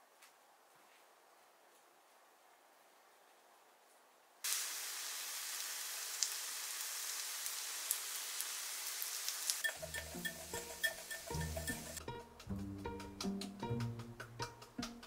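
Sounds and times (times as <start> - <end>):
food sizzling in a pan: 4.4 - 12.0
soft music: 9.7 - 15.0.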